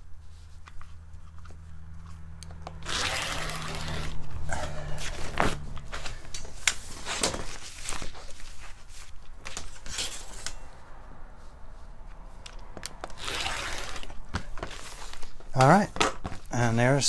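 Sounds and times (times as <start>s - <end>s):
rotary cutter rasping through fabric: 2.8s - 4.3s.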